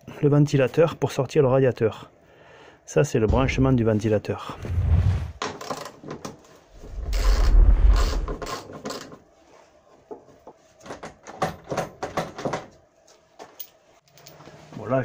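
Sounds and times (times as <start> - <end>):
rubbing and scraping: 6.7 - 8.6.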